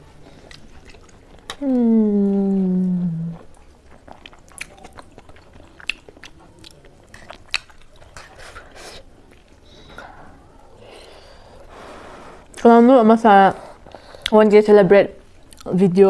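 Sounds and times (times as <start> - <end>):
chewing noodles: 0.2 - 1.6, 2.2 - 11.8.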